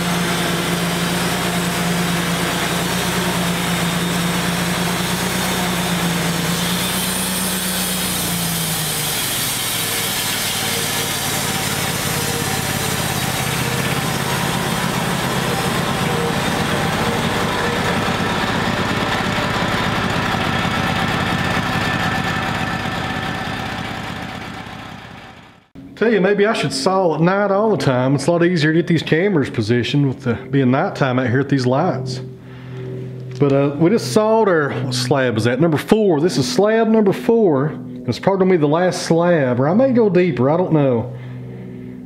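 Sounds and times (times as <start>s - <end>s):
band sawmill sawing log: 0.0s - 25.7s.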